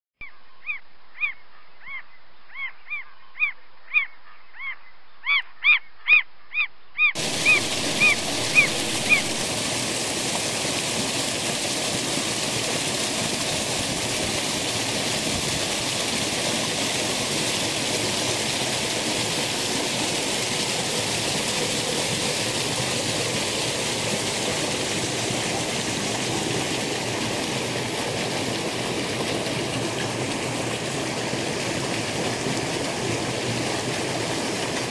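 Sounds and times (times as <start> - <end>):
short pitched calls: 0.2 - 9.4
stream rushing over a drop: 7.2 - 34.9.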